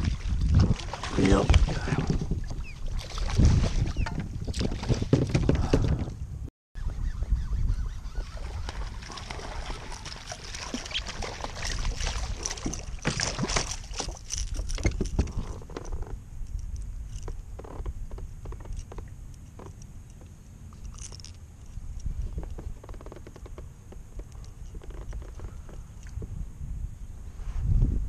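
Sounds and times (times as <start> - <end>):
wind rumbling on microphone: 0.0 - 28.0
fish splashing in water: 8.3 - 14.3.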